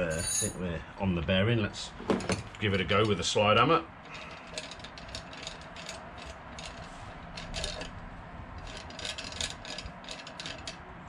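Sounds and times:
bearing puller metallic clicking: 4.0s - 8.0s, 8.6s - 10.8s.

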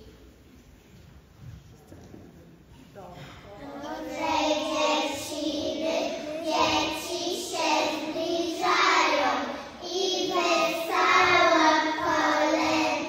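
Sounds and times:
young children singing: 3.5s - 13.0s.

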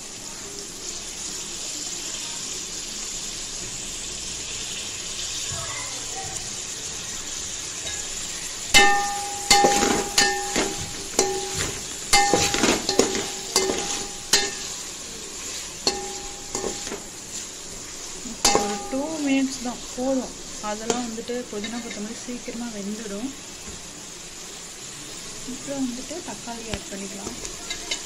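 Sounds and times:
onions sizzling in a pot: 0.0s - 28.0s
spoon knocking against pot: 8.8s - 14.8s, 15.9s - 17.1s, 18.4s - 19.1s.

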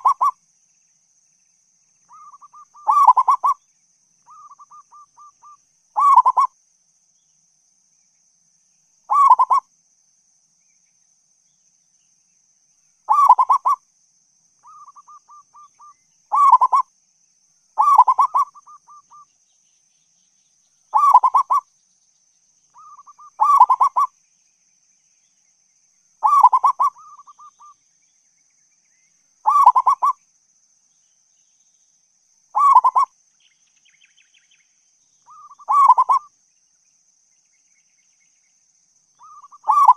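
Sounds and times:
dove cooing: 0.0s - 0.3s, 2.1s - 3.6s, 4.3s - 6.5s, 9.1s - 9.6s, 13.1s - 13.8s, 16.3s - 16.8s, 17.8s - 19.2s, 21.0s - 21.6s, 22.8s - 24.1s, 26.2s - 27.7s, 29.5s - 30.2s, 32.6s - 33.1s, 35.3s - 36.3s, 39.2s - 39.9s.

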